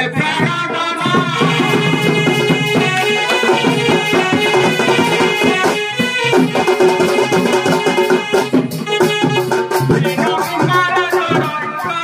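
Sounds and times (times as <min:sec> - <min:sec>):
drums beating quick rhythm: 0:00.0 - 0:12.0
reed instrument melody: 0:01.4 - 0:10.3.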